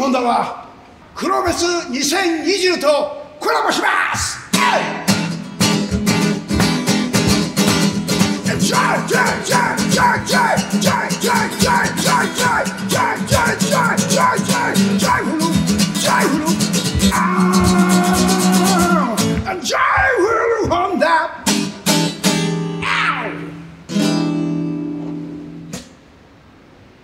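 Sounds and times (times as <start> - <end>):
acoustic guitar strumming: 4.5 - 19.5, 21.4 - 26.2
man singing: 8.4 - 21.4.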